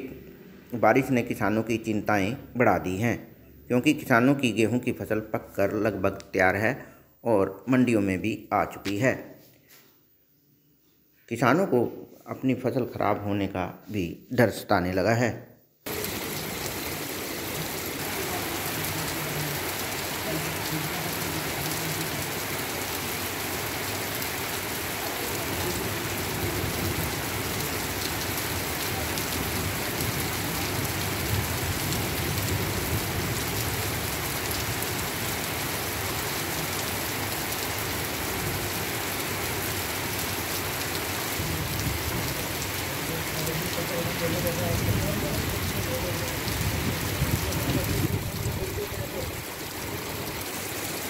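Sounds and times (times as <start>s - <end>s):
heavy rain on pavement: 15.9s - 51.0s.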